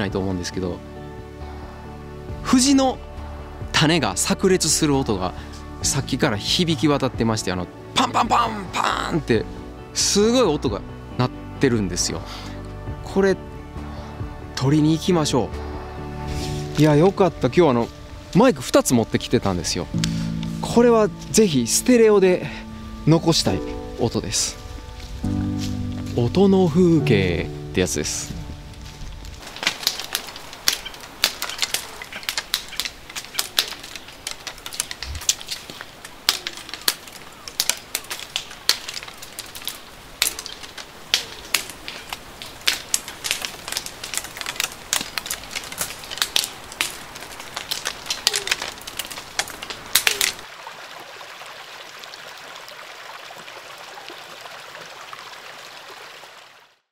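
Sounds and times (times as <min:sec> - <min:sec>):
stream rushing: 0:14.0 - 0:56.9
seed pods popping: 0:28.8 - 0:50.4.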